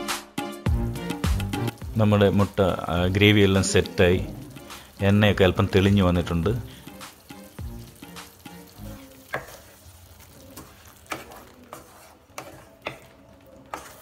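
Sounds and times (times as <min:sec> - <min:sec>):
light sizzle: 0:00.7 - 0:14.0
spatula scraping a frying pan: 0:08.7 - 0:14.0.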